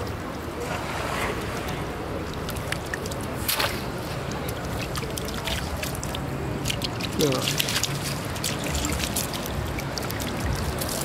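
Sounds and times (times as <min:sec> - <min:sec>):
water splashing and dripping: 0:00.0 - 0:11.0.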